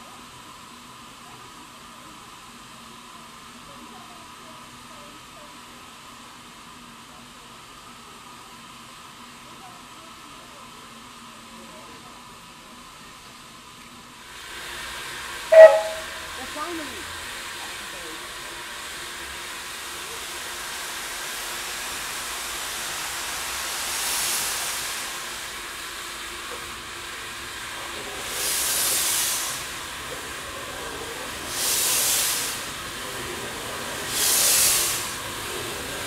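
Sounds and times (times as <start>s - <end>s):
steam hissing: 14.3s - 36.0s
steam locomotive chuffs: 14.3s - 36.0s.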